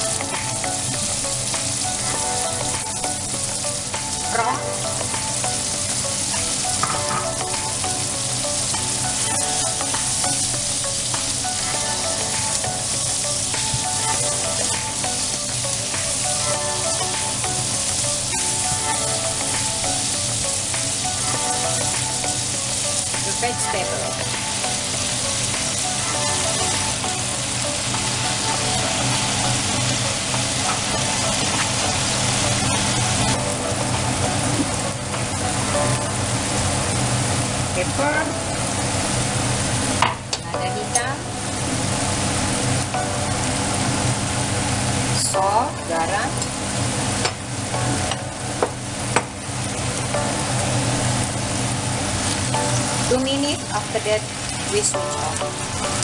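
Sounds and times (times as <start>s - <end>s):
food sizzling in frying pan: 0.0s - 56.0s.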